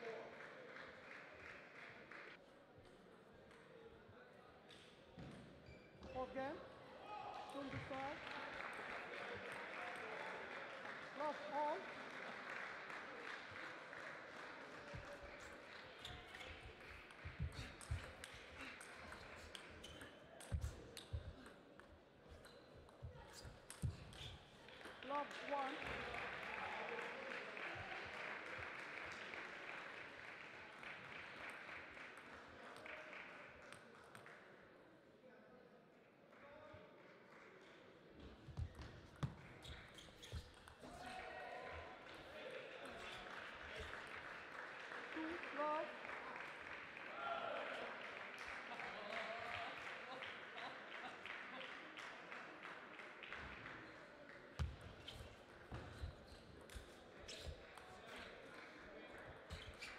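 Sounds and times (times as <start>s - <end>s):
spectators applauding: 0.0s - 2.4s, 7.4s - 19.9s, 24.6s - 34.4s, 40.8s - 54.6s.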